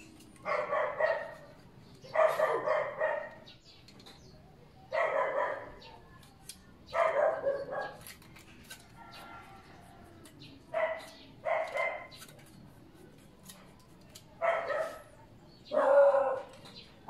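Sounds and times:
dog barking: 0:00.4 - 0:01.5, 0:02.1 - 0:03.5, 0:04.9 - 0:05.9, 0:06.9 - 0:08.1, 0:10.7 - 0:12.2, 0:14.4 - 0:16.6.

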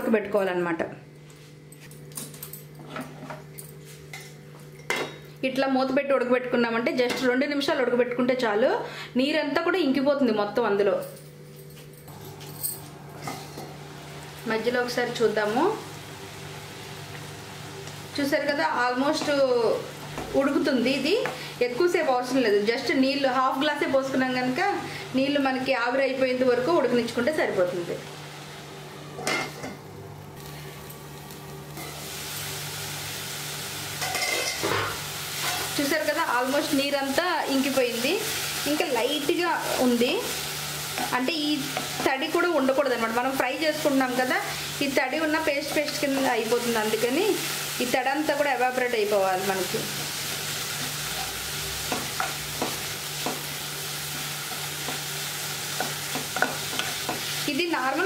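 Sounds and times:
leaves sizzling in a pan: 0:13.3 - 0:29.0, 0:30.2 - 0:58.0.

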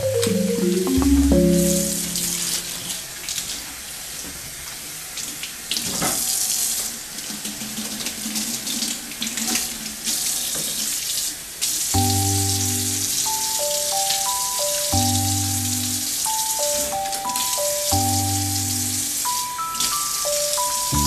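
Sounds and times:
tap water splashing into sink: 0:05.2 - 0:06.3, 0:07.2 - 0:10.9.

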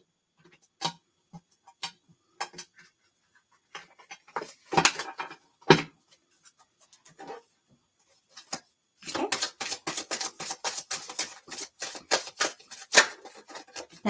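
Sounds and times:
cards being shuffled: 0:08.3 - 0:14.0.

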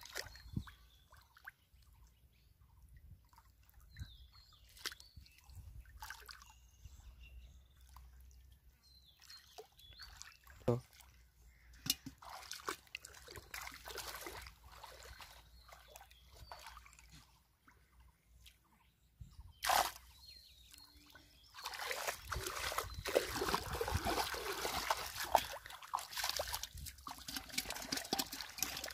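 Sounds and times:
muddy water sloshing and splashing: 0:00.0 - 0:02.0, 0:03.0 - 0:06.6, 0:07.7 - 0:18.8, 0:19.5 - 0:28.9
water dripping: 0:21.6 - 0:28.9.

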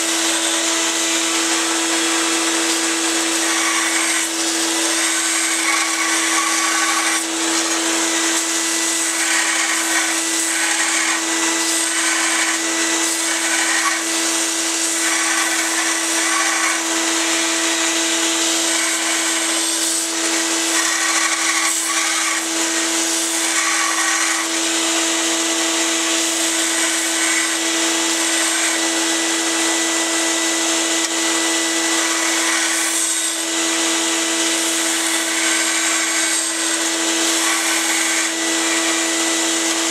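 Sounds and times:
belt sander motor hum: 0:00.0 - 0:39.9
steel blade grinding on belt: 0:01.4 - 0:17.9, 0:18.5 - 0:24.5.

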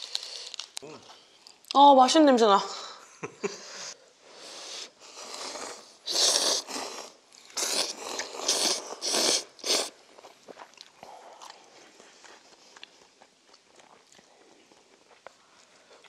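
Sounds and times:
noodles slurped: 0:05.2 - 0:10.8
faint chewing: 0:05.2 - 0:16.0.

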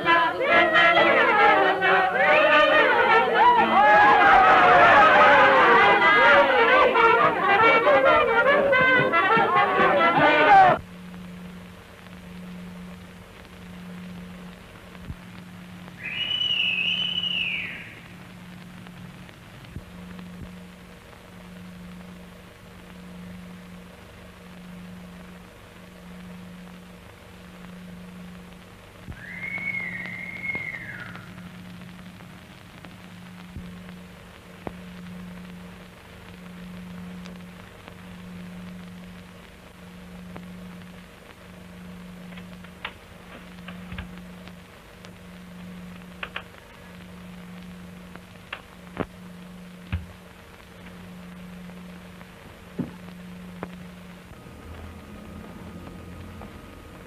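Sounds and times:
low pulsing hum: 0:10.8 - 0:57.0
high whistle-like tone: 0:16.0 - 0:18.1, 0:29.1 - 0:31.4
hiss: 0:16.0 - 0:18.3, 0:29.1 - 0:31.5.

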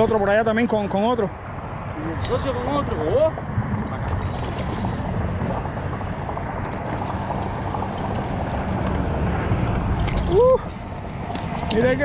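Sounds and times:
faint sea: 0:00.0 - 0:12.0
wind buffeting microphone: 0:00.0 - 0:12.0.

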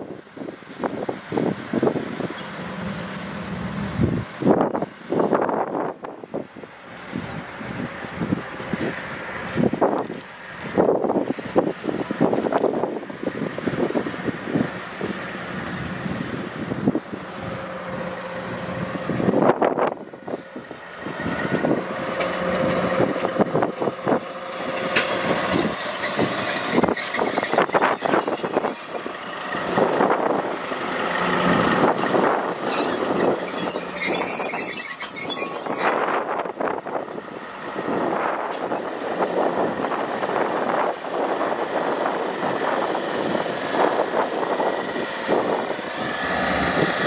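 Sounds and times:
freight train engine: 0:00.0 - 0:47.0
high metal squeal: 0:24.3 - 0:30.4, 0:32.4 - 0:36.2.

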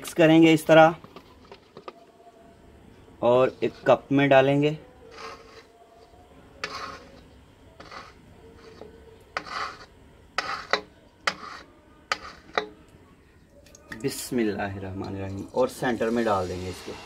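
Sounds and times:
ceramic mug scraping steel bowl: 0:05.1 - 0:05.8, 0:06.6 - 0:12.7.

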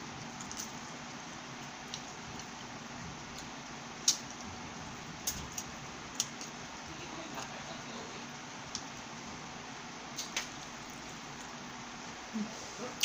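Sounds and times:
chewing and food handling clicks: 0:00.4 - 0:00.8, 0:01.8 - 0:02.6.

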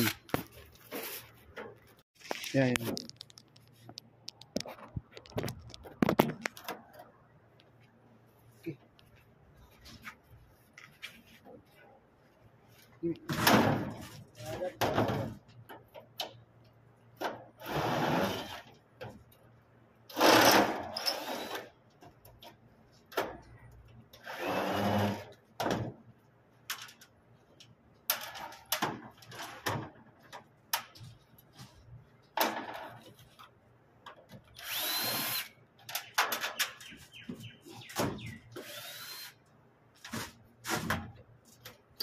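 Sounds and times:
power drill whining: 0:34.6 - 0:35.5, 0:38.6 - 0:39.4.

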